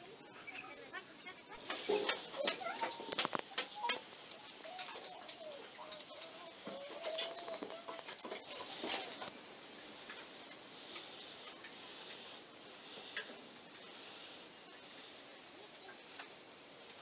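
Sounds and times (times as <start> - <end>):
soft hiss: 0.0 - 17.0
pencils clicking on wooden desks: 1.6 - 9.3.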